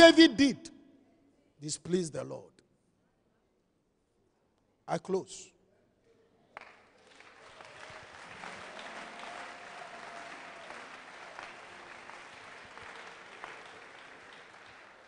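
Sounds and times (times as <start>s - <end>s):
congregation applauding: 6.6s - 15.0s.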